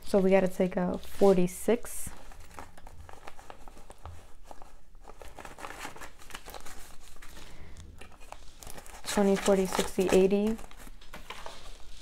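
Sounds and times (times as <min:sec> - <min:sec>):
banknotes being counted: 0:08.7 - 0:10.8.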